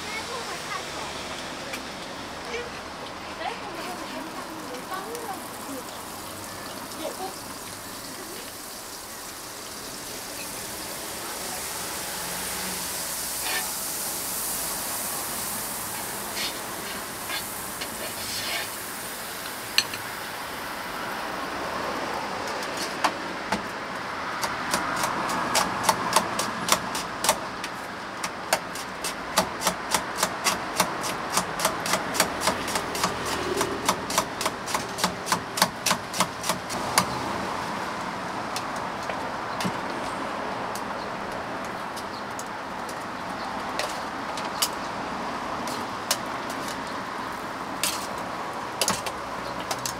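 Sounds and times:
steady hiss: 0.0s - 21.6s.

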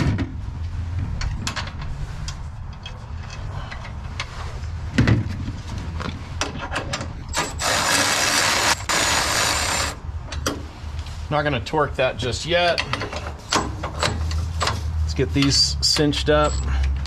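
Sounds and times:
power tool running: 7.4s - 10.0s
tool clicks and metal knocks: 12.7s - 14.8s.

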